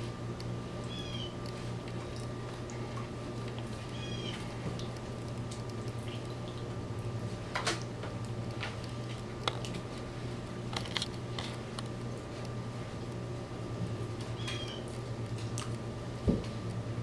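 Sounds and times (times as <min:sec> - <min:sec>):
steady low hum: 0:00.0 - 0:17.0
wet squelches of tomatoes: 0:00.8 - 0:10.3.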